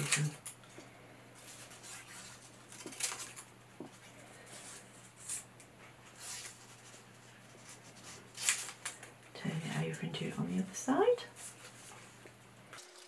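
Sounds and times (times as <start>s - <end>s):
scissors snipping paper: 0.0s - 0.6s.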